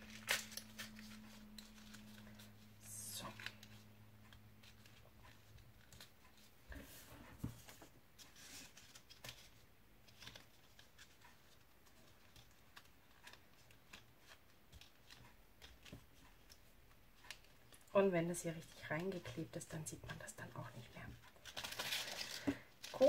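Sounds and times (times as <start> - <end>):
card stock rustling and clicking: 0.0 - 6.8, 7.4 - 17.9, 21.1 - 23.0.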